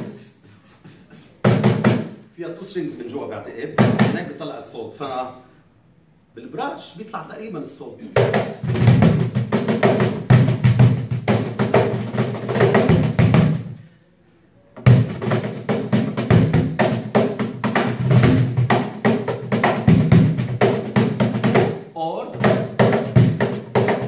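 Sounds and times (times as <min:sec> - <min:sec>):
cajon groove: 0:00.0 - 0:02.2, 0:03.8 - 0:04.3, 0:08.0 - 0:13.8, 0:14.8 - 0:24.0.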